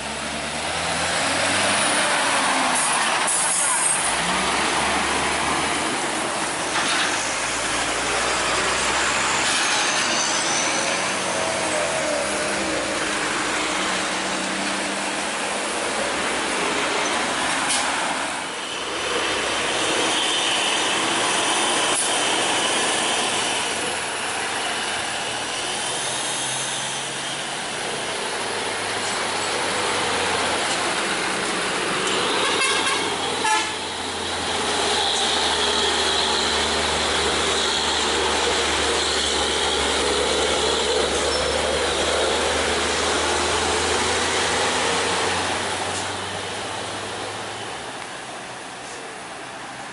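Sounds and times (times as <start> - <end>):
heavy trucks driving past: 0.0 - 49.9
high squeals: 9.0 - 12.9.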